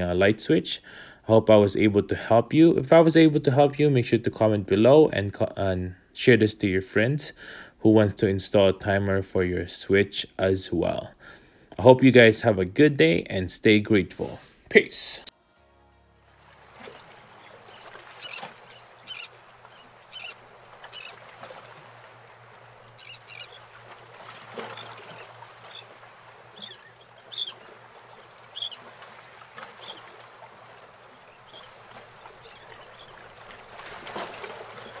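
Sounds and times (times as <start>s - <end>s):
birds chirping: 16.6s - 35.0s.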